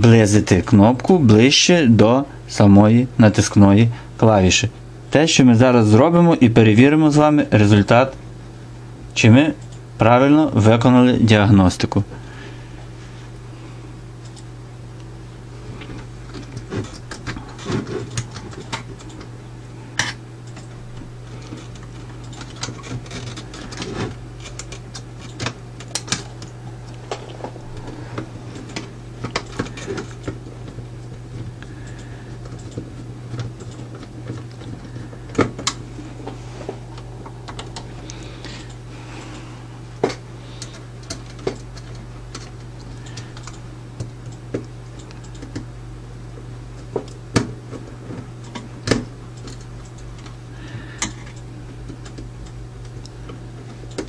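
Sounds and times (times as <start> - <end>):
low hum: 12.0 - 54.0.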